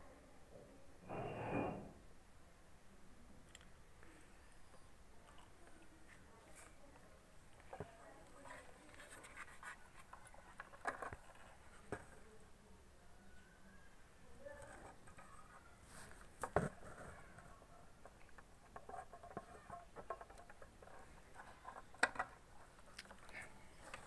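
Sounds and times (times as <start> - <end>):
handling clicks and rustles: 14.6 - 24.0.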